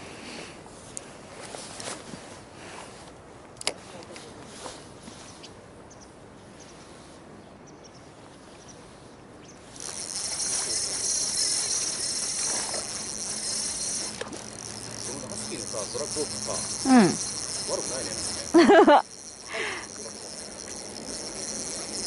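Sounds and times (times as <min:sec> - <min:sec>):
fishing reel whirring: 0:09.7 - 0:22.0.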